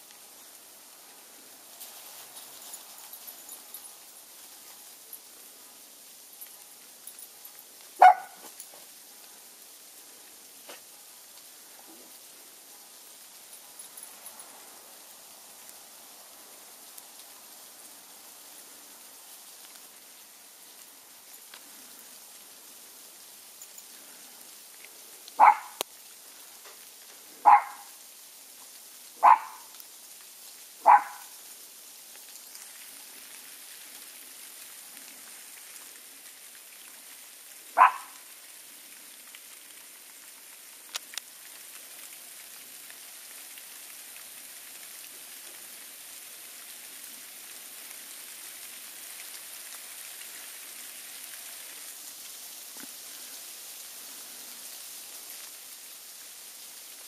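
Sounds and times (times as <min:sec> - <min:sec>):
small dog barking: 0:08.0 - 0:08.6, 0:25.4 - 0:25.8, 0:27.4 - 0:28.0, 0:29.2 - 0:29.7, 0:30.8 - 0:31.3, 0:37.8 - 0:38.2.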